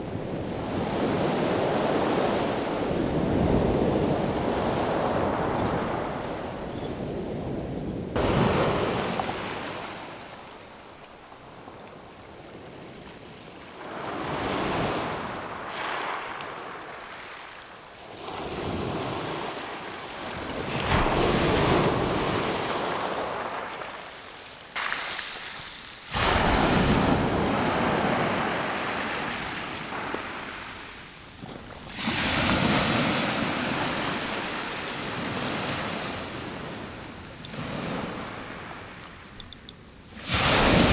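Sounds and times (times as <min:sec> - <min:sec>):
waves breaking on shingle: 0:31.3 - 0:36.2.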